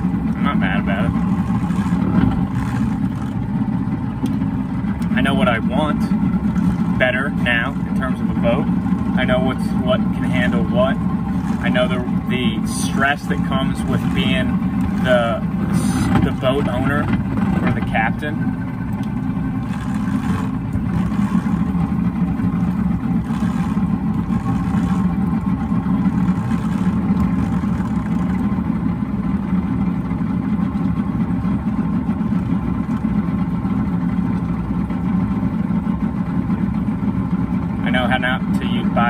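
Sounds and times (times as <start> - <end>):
water rushing: 0.0 - 28.9
outboard motor running: 0.0 - 39.0.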